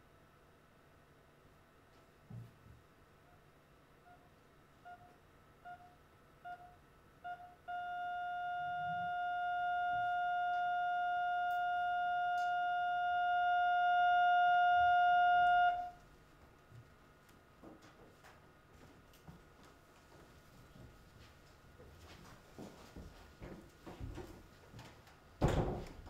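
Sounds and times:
heart monitor beeps: 0:04.0 - 0:16.0
heart monitor flatline tone: 0:04.0 - 0:16.0.

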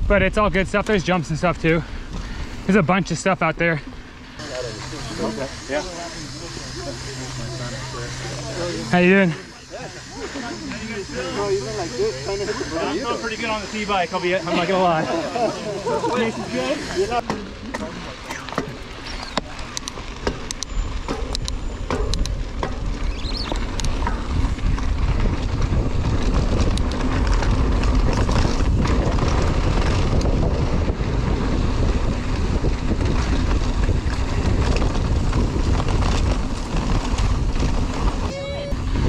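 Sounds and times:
tyre and trail rumble: 0:00.0 - 0:39.0
wind rushing over microphone: 0:18.0 - 0:39.0
sharp clicks and rattles: 0:18.2 - 0:30.4.

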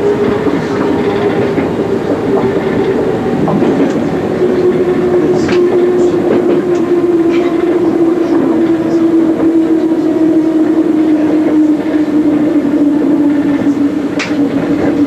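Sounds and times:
electric train motor whine: 0:00.0 - 0:15.0
train wheels rumbling: 0:00.0 - 0:15.0
faint clicks from rails: 0:00.1 - 0:07.8, 0:11.1 - 0:15.0.

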